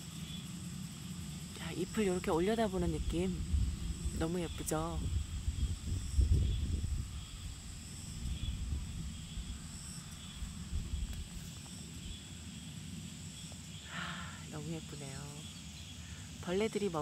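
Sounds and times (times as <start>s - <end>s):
insects chirring: 0.0s - 17.0s
low rumble: 1.6s - 11.4s.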